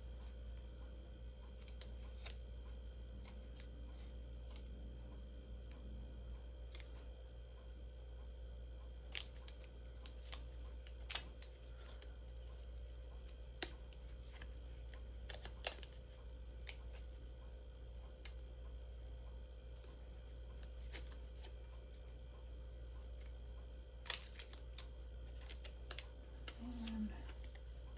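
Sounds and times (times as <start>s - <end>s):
steady low hum: 0.0s - 27.9s
clicks and taps of paper handling: 24.0s - 27.9s.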